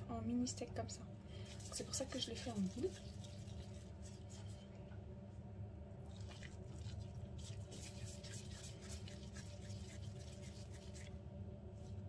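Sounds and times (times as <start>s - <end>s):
low steady hum: 0.0s - 12.0s
meat squishing: 1.4s - 4.9s, 6.0s - 11.2s.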